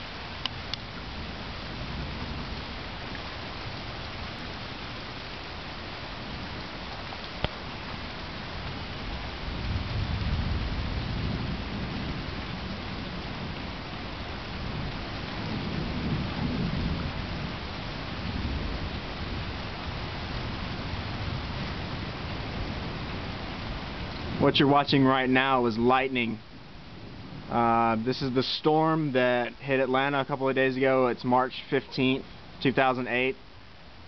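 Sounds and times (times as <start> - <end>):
steady rain: 0.0 - 34.0
thunder rumbling: 8.8 - 33.3.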